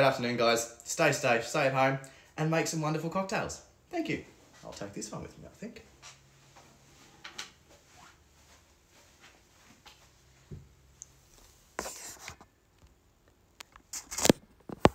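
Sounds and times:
rustling and handling noises: 5.9 - 14.9.

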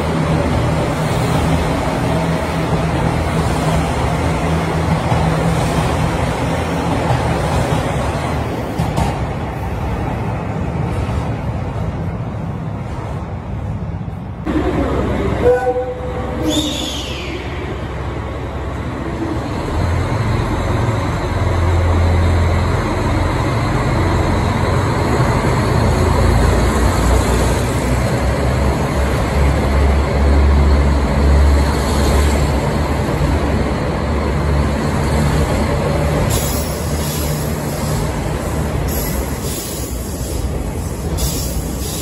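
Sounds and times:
train wheels rumbling: 0.0 - 42.0
diesel engine drone: 14.4 - 36.3.

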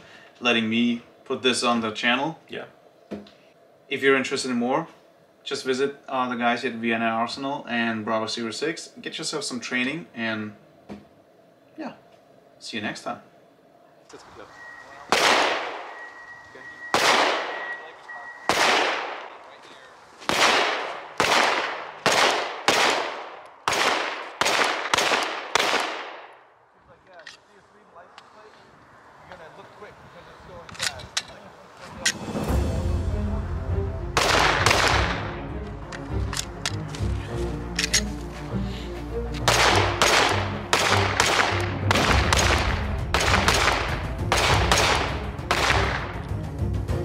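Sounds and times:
pistol shots with echo: 15.1 - 16.0, 16.8 - 17.8, 18.4 - 19.4, 20.3 - 26.3, 34.2 - 35.3, 39.4 - 46.1
background music: 32.2 - 47.0.

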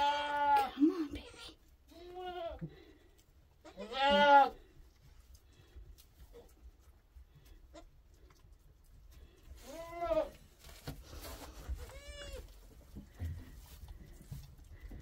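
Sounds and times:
goats bleating: 0.0 - 0.8, 3.6 - 4.7.

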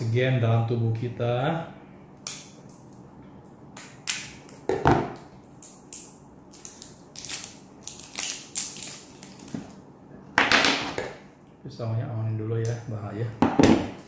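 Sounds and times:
plastic packaging cut and crinkled: 5.5 - 9.7.

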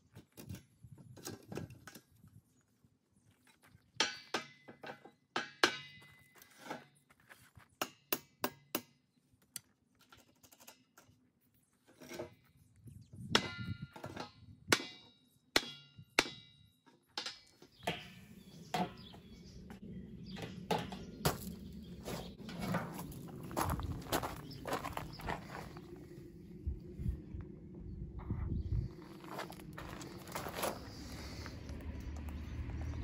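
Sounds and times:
footsteps on steel grating: 20.9 - 26.1, 28.9 - 33.0.

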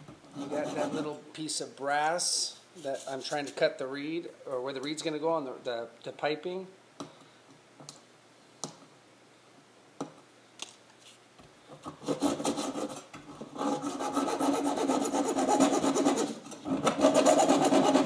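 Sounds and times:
hacksaw sawing strokes: 12.0 - 18.0.

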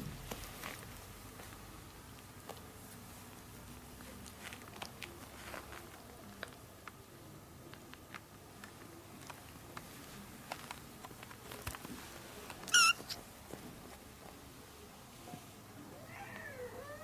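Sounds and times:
kitten mewing: 12.7 - 13.2.

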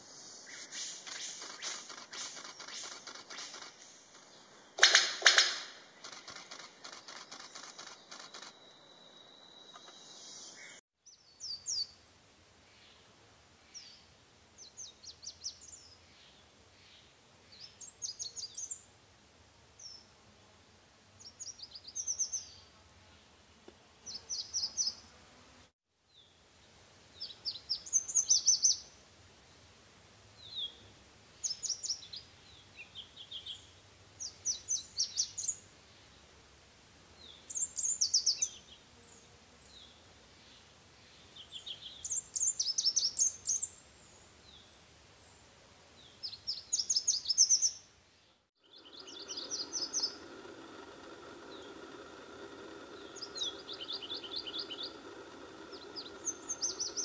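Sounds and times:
bird twittering song: 6.0 - 12.1, 27.2 - 28.8, 31.4 - 35.6, 37.2 - 38.8, 39.6 - 44.8, 46.0 - 57.0.

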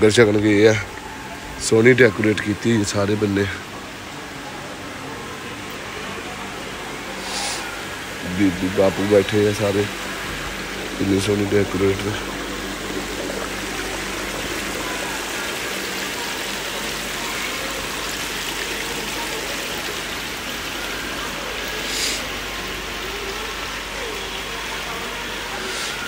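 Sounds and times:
faint voices murmuring: 0.0 - 26.0
fountain water splashing: 0.0 - 26.0
brief hiss: 7.2 - 7.8, 21.8 - 22.3.

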